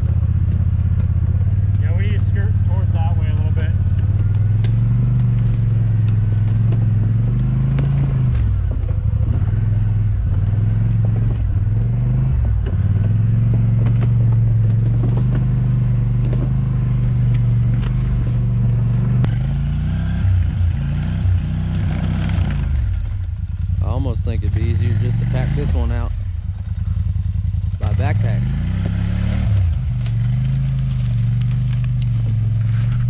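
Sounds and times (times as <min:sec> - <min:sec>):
atv engine revving: 0:00.0 - 0:33.0
sharp clicks and knocks: 0:10.3 - 0:18.4.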